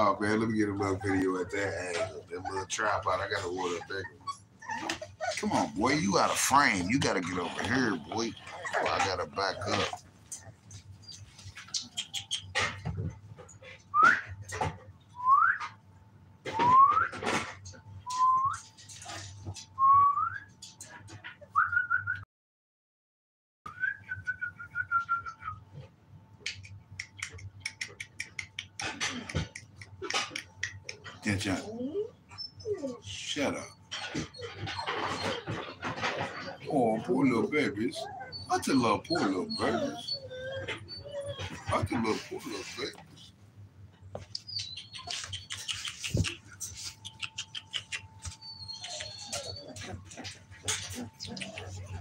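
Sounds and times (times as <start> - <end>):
puppies scuffling: 0.0 - 13.5, 32.8 - 43.3, 44.0 - 52.0
puppies scrambling on pads: 0.0 - 14.9, 26.7 - 52.0.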